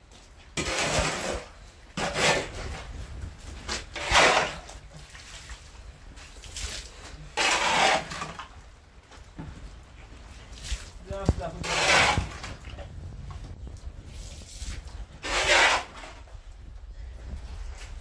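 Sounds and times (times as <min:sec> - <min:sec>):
shovel scraping muddy water: 0:00.6 - 0:02.9, 0:03.6 - 0:08.6, 0:10.7 - 0:12.8, 0:14.2 - 0:16.4.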